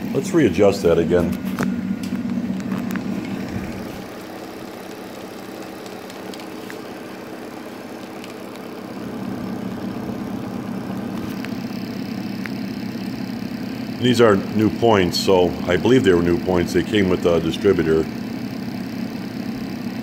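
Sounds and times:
motor mechanical hum: 0.0s - 20.0s.

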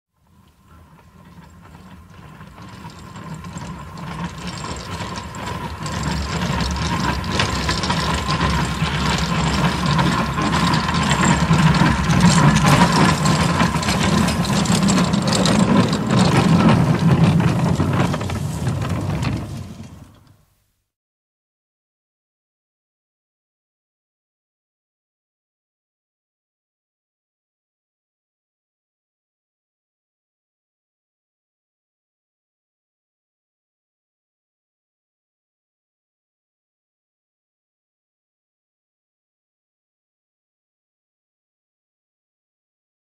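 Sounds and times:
rail trolley running on rails: 0.3s - 20.4s.

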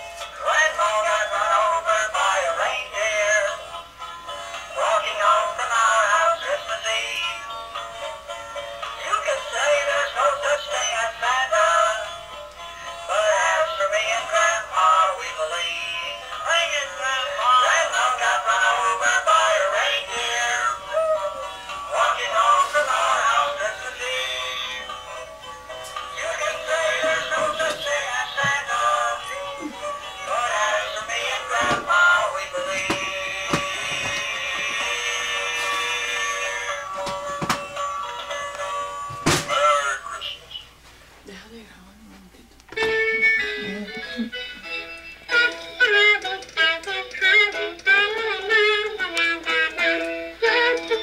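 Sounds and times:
toy singing through tinny speaker: 45.3s - 51.0s.

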